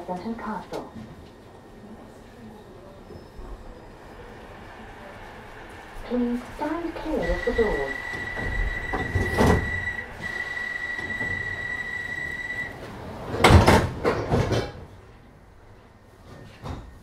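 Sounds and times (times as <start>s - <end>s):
sliding doors closing with a clatter: 3.1s - 15.2s
high-pitched door warning tone: 6.1s - 12.8s.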